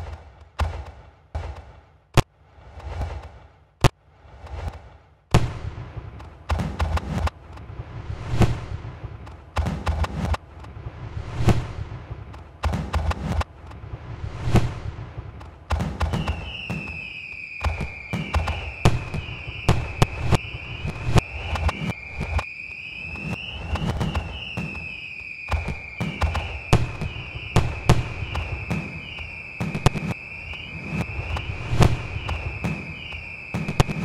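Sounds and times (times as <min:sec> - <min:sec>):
fireworks bangs and cracks: 0:00.0 - 0:34.0
high wavering whistle: 0:16.0 - 0:34.0.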